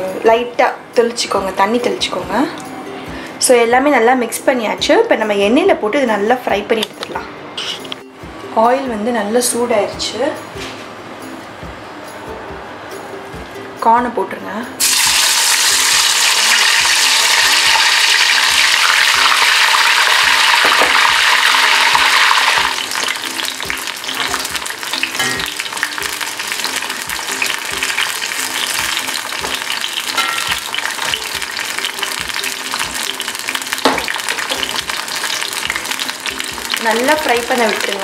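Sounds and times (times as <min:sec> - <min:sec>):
food deep-frying in hot oil: 0:14.8 - 0:38.0.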